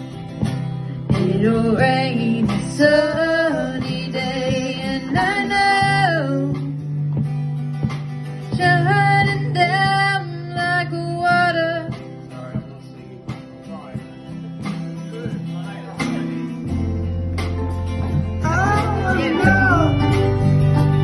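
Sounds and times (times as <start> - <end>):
acoustic guitar strumming: 0.0 - 21.0
low bass notes: 12.1 - 21.0
person singing: 18.4 - 21.0.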